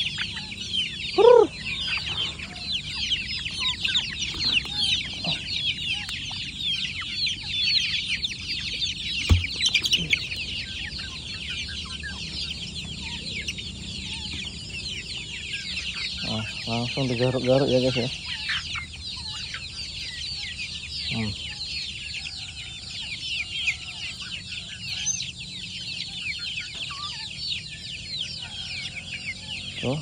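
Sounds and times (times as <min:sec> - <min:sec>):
louder lower chicken call: 0:00.0 - 0:02.8
chicks peeping: 0:00.0 - 0:30.0.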